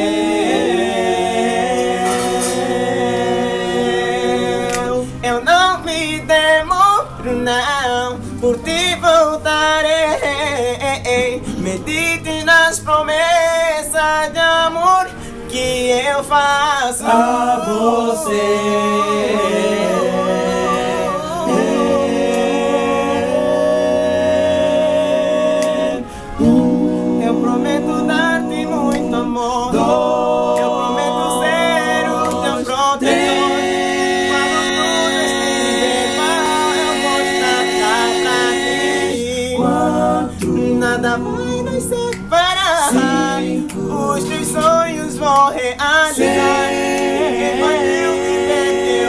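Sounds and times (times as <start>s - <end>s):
male vocal group singing gospel: 0.0s - 49.0s
lead voice sliding between notes: 25.2s - 42.0s.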